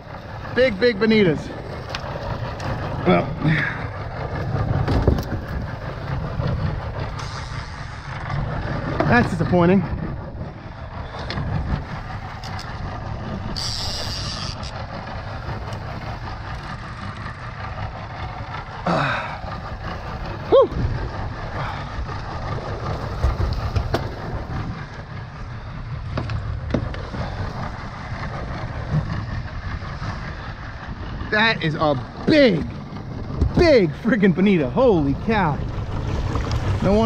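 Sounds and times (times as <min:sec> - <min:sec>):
outboard motor running: 0:00.0 - 0:37.0
wind: 0:00.0 - 0:37.0
water rushing: 0:26.8 - 0:37.0.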